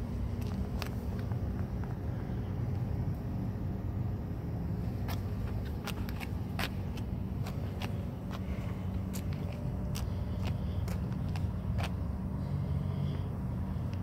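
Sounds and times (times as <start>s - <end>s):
low engine-like hum: 0.0s - 14.0s
footsteps on gritty concrete: 0.3s - 1.9s, 5.0s - 12.1s.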